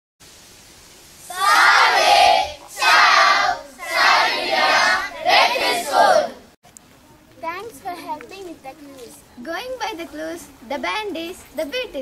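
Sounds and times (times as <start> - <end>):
children calling out in unison: 1.3 - 6.4.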